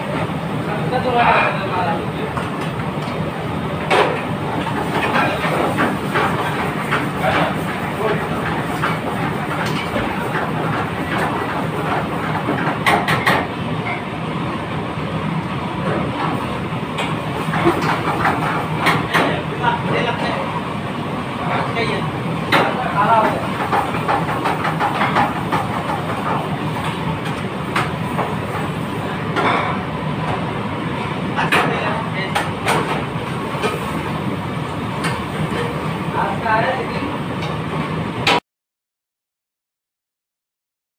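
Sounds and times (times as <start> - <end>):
busy kitchen roar: 0.0 - 38.4.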